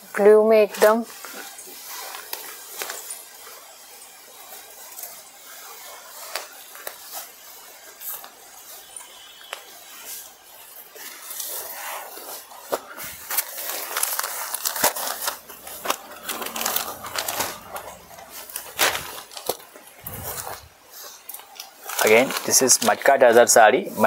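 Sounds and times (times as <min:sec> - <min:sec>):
silk fabric rustling: 0:09.9 - 0:21.2.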